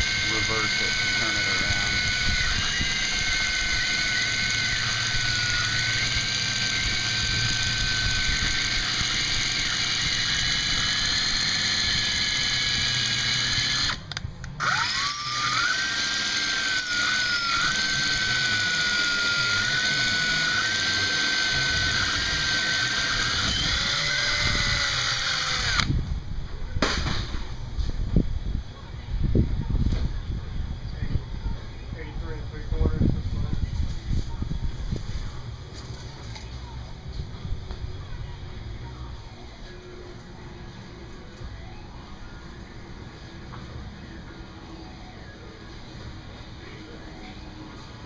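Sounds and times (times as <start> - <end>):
cordless drill whining: 0.0 - 26.0.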